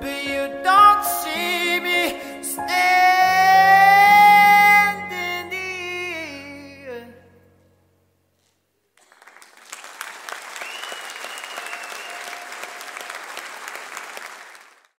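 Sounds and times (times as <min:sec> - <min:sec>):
audience applause: 0:09.0 - 0:15.0
high cheer: 0:09.2 - 0:14.6.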